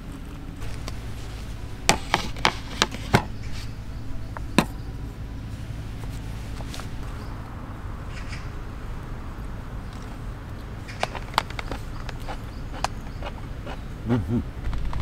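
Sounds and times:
hard objects knocking: 0:00.6 - 0:03.7, 0:04.3 - 0:04.8.

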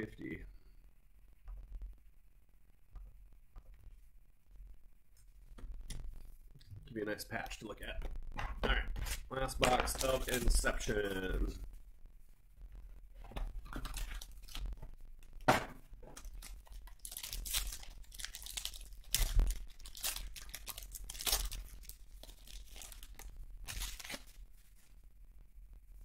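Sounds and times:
foil pack crinkling and ripping: 0:08.9 - 0:11.6, 0:13.6 - 0:15.5, 0:16.1 - 0:24.9.

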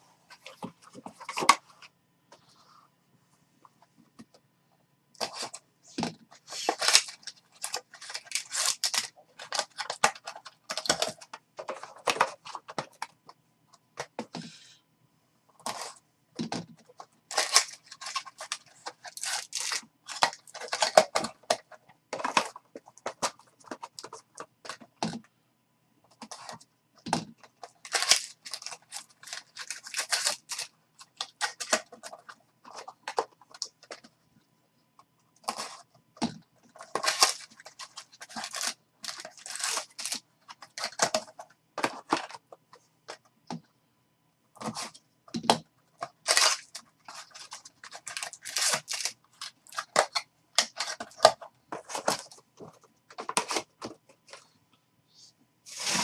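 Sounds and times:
foil packs crinkling: 0:06.4 - 0:13.1, 0:17.3 - 0:24.3, 0:27.6 - 0:34.0, 0:36.8 - 0:42.4, 0:46.0 - 0:54.0, 0:55.7 - 0:56.0.

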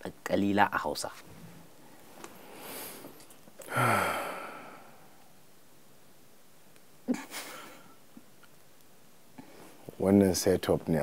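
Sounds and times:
man breathing in: 0:02.5 - 0:05.2
man sighing: 0:03.6 - 0:05.2.

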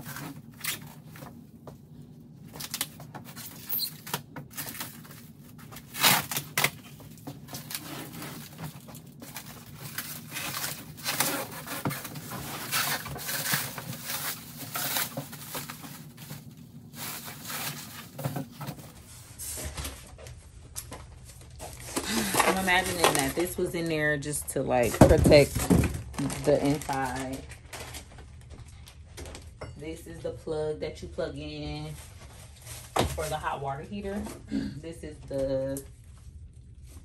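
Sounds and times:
plastic stretch wrap crinkling: 0:02.4 - 0:19.1, 0:20.1 - 0:29.3.

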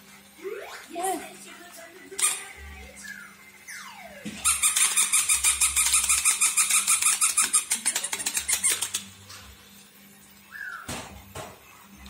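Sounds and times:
toy puppy squealing: 0:02.2 - 0:02.5, 0:04.4 - 0:09.0.

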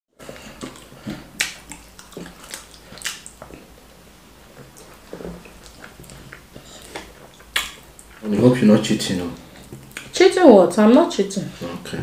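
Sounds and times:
soft chewing: 0:00.2 - 0:08.4, 0:09.1 - 0:10.2
wet mouth smacks and clicks: 0:00.6 - 0:03.5, 0:05.6 - 0:08.1, 0:09.6 - 0:10.1.

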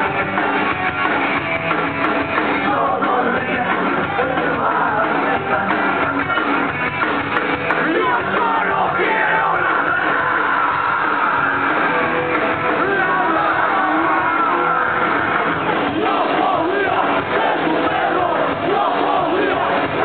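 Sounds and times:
drums: 0:00.0 - 0:20.0
electric guitar: 0:00.0 - 0:20.0
person singing: 0:02.6 - 0:06.4, 0:07.8 - 0:11.8.

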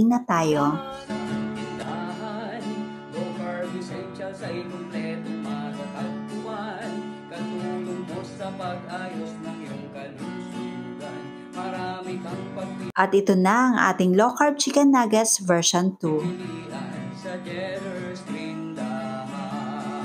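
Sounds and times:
strummed acoustic guitar: 0:00.8 - 0:12.9, 0:16.3 - 0:20.0.

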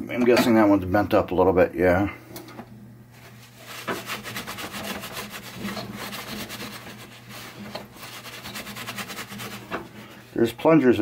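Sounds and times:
paper towel scrubbing metal: 0:03.2 - 0:10.5.

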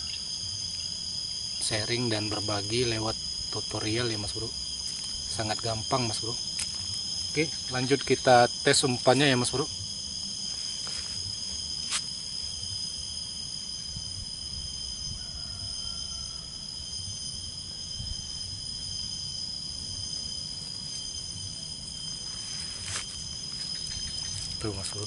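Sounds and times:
crickets chirping: 0:00.0 - 0:25.0.

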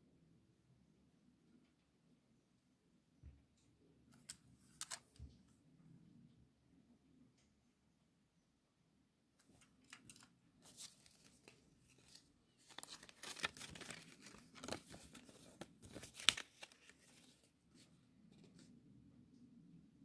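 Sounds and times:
paper insert rustling and crinkling: 0:09.5 - 0:18.7.

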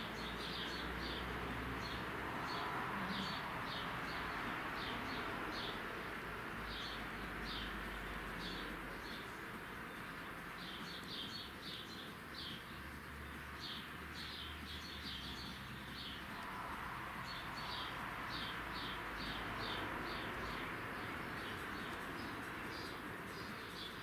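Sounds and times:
small bird chirping: 0:06.7 - 0:24.0.

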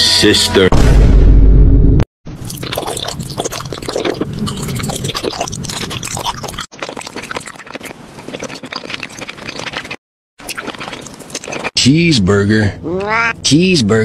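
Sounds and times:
crunchy candy chewing: 0:02.4 - 0:11.8.

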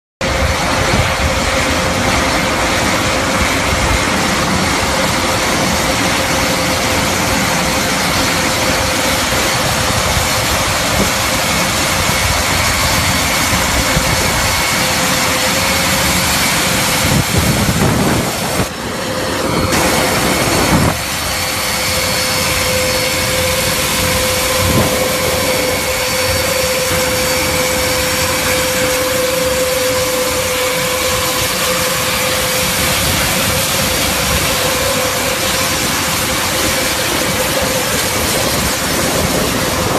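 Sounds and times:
turboprop engines droning: 0:00.2 - 0:39.9.

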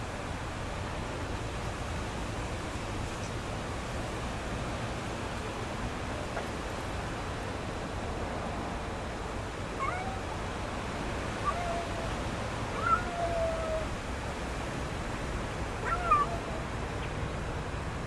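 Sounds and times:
kitten mewing: 0:09.8 - 0:10.3, 0:15.8 - 0:16.6.

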